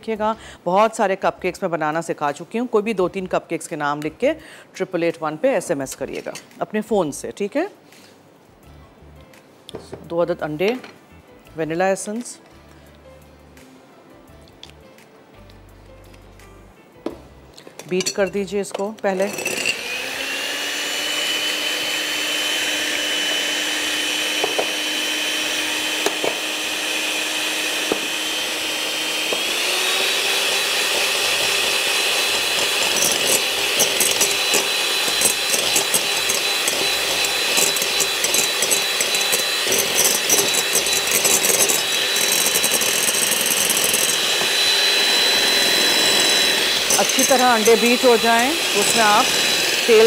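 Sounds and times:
electric hand mixer whining: 19.1 - 50.0.

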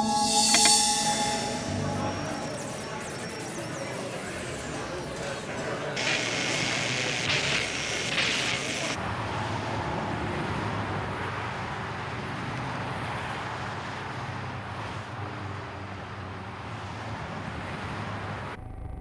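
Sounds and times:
low hum: 0.0 - 5.7.

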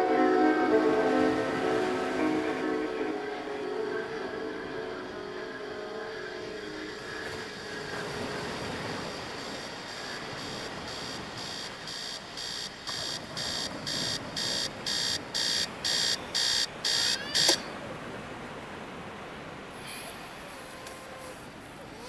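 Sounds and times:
rapid electronic beeps: 9.0 - 17.6.

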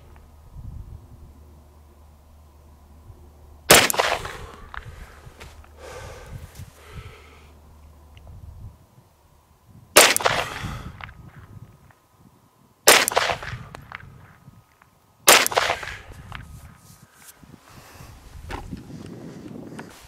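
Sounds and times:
pistol shots with echo: 3.7 - 4.4, 10.0 - 10.6, 12.9 - 13.7, 15.3 - 16.1.

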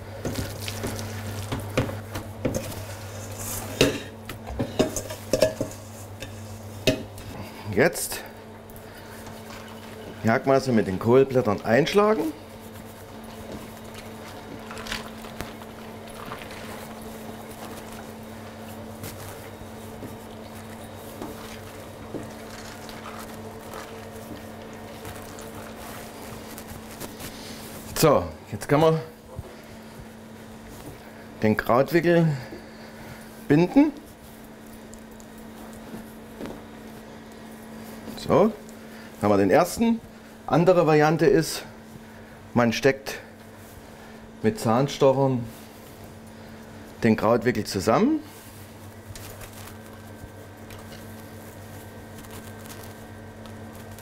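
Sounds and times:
steady low hum: 0.0 - 54.0
leaves rustling and squishing: 9.0 - 28.7, 48.2 - 54.0.

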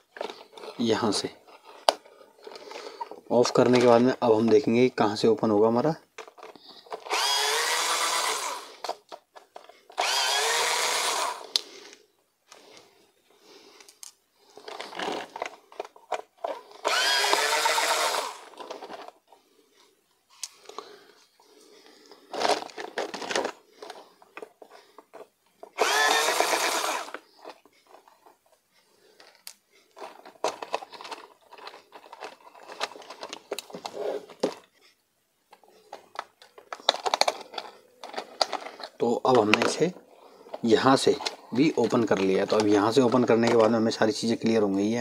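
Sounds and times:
clicks of screws and plastic parts: 6.2 - 10.6, 13.8 - 19.2, 29.2 - 34.7, 35.5 - 39.9, 40.5 - 43.8
electric screwdriver whining: 6.9 - 9.0, 9.9 - 11.6, 16.7 - 18.8, 25.8 - 27.2.

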